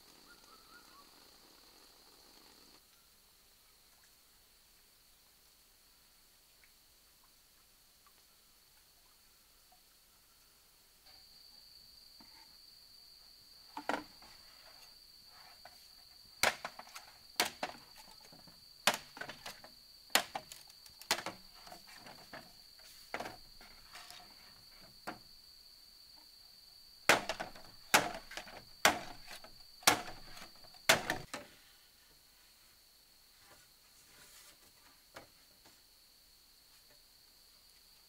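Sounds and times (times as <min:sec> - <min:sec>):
high insect drone: 0:00.0 - 0:02.8
bamboo poles knocking together: 0:13.7 - 0:14.3, 0:16.4 - 0:25.2, 0:27.1 - 0:31.5.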